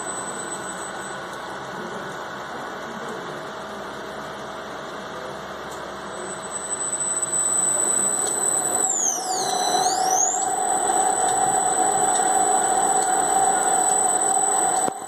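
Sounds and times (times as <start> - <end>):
high whine: 0.0 - 2.6, 5.8 - 15.0.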